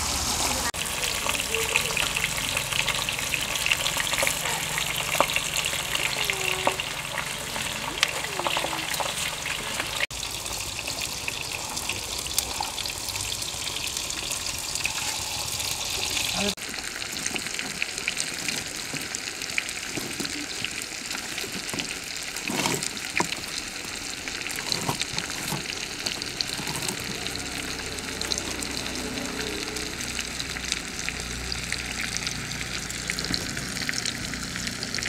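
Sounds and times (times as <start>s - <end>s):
fish sizzling in oil: 0.0s - 35.0s
oil popping: 0.9s - 10.9s, 16.5s - 29.1s, 29.8s - 35.0s.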